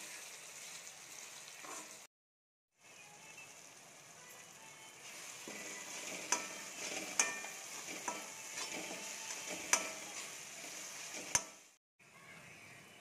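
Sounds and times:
vegetables sizzling in hot oil: 0.0 - 2.1, 2.8 - 11.8
metal spatula knocking on pan: 5.5 - 10.1.

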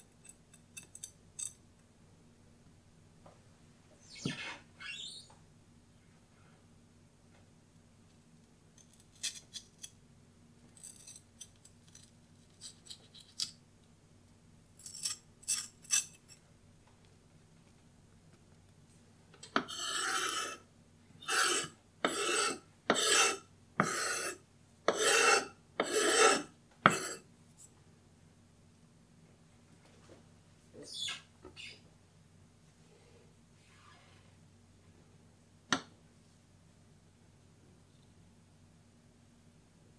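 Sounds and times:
knife scraping wooden board: 19.6 - 20.6, 21.2 - 27.2
faint knife scrapes and taps: 24.9 - 27.7.

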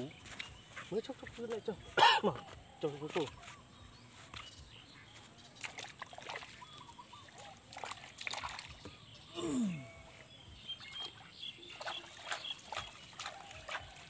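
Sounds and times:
muddy water splashing: 4.0 - 14.0
short vocal sound falling: 9.3 - 10.0.

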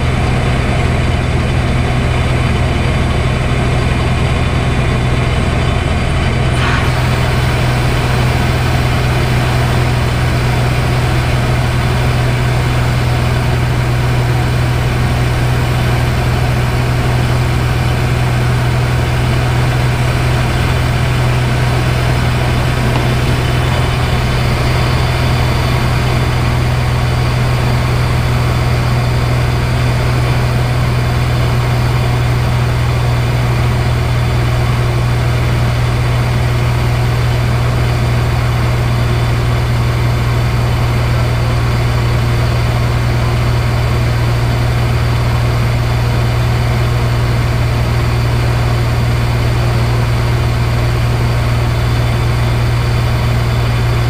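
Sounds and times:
aircraft engine and propeller droning: 0.0 - 54.0.

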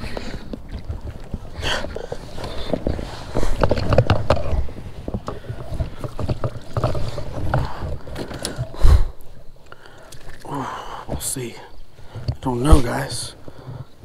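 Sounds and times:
knocks and clunks in a kayak: 0.0 - 14.0.

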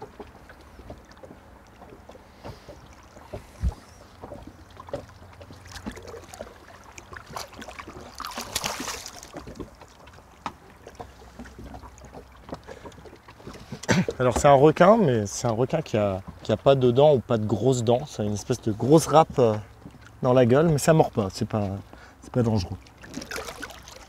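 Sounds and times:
water slapping against boat: 0.0 - 24.0
fish splashing at surface: 2.4 - 14.0, 22.9 - 24.0
wind on microphone: 3.3 - 4.0.

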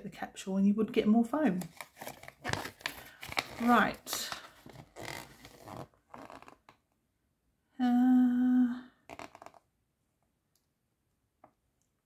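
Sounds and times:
paper rustling: 1.6 - 6.6
person humming: 7.8 - 9.0.

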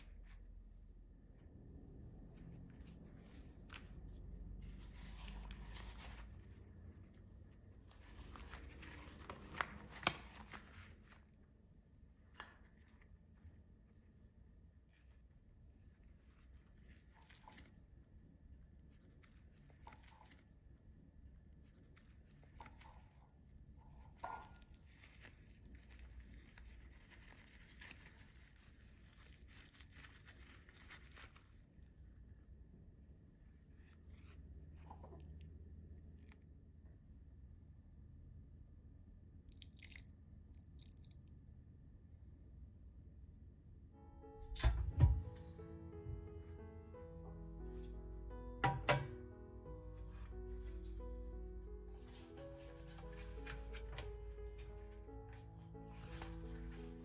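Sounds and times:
low room hum: 0.0 - 57.0
rubber gloves rustling: 2.2 - 32.4, 33.6 - 34.9, 49.4 - 57.0
plastic pouch crinkling: 21.6 - 31.9, 51.7 - 57.0.

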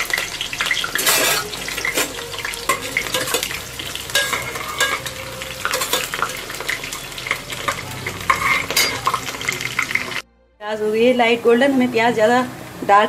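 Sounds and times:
onions sizzling in hot oil: 0.0 - 10.2
steel spoon scraping a pot: 0.1 - 10.2.

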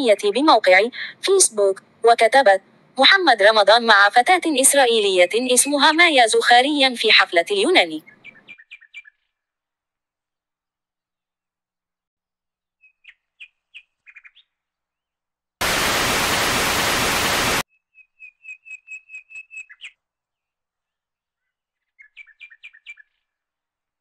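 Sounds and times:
tv static hiss: 15.6 - 17.6.

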